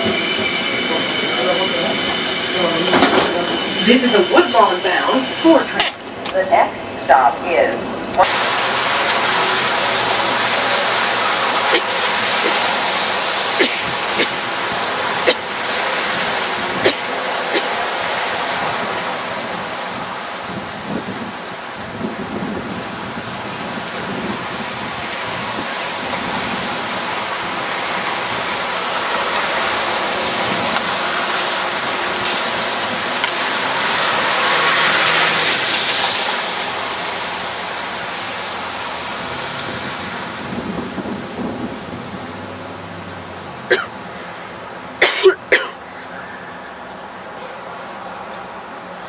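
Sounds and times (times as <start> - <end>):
tyres hissing on wet pavement: 8.2 - 49.0
cars driving past: 30.8 - 40.8.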